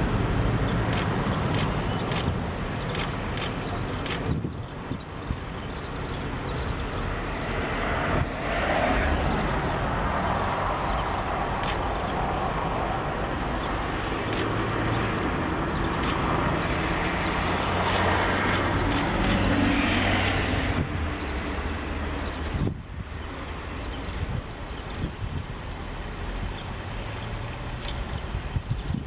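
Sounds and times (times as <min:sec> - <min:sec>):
steady rushing noise: 0:00.0 - 0:29.0
short high-pitched ticks: 0:00.9 - 0:02.3, 0:02.9 - 0:04.3.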